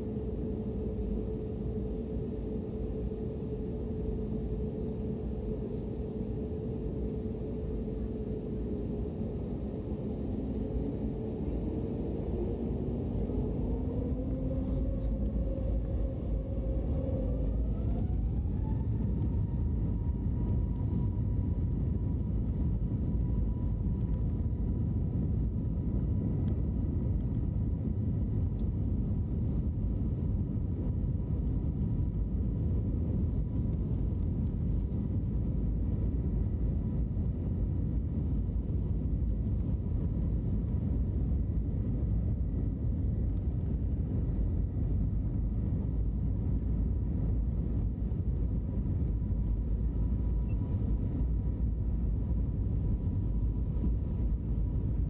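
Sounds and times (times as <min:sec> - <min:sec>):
loud cabin rumble: 0:00.0 - 0:19.1
jet engines whining: 0:00.0 - 0:20.6.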